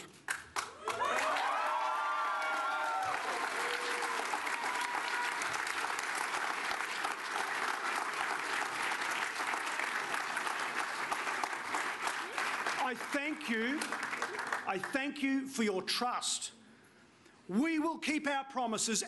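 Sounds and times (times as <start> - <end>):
crowd applauding and cheering: 0.0 - 15.0.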